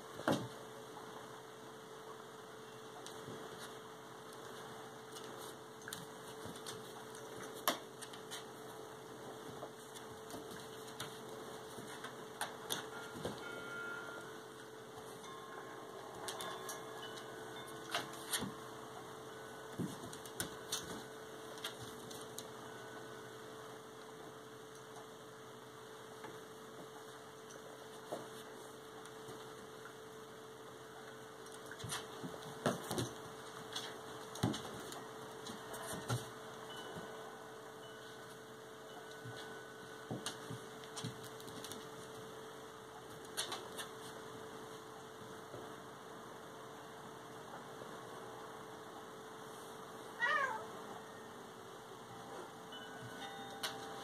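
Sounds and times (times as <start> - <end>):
steady electrical hum: 0.0 - 54.0
dog claws clicking on tile floor: 43.1 - 44.0.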